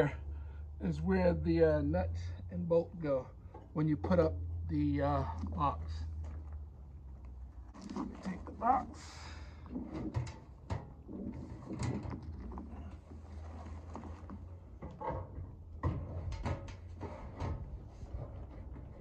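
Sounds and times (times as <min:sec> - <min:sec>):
knocks and clunks of metal box: 0:09.7 - 0:12.6, 0:14.8 - 0:19.0.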